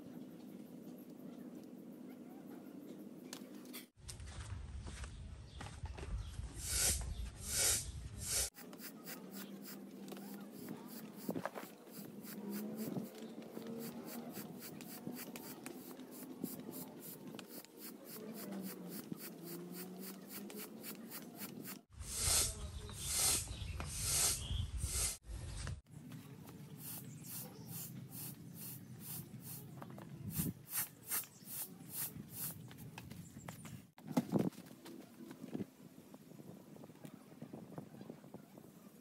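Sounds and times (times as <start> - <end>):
hand air pump strokes: 6.6 - 25.2.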